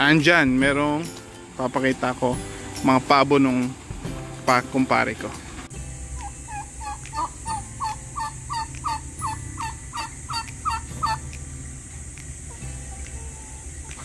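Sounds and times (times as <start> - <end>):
turkeys calling: 5.6 - 14.0.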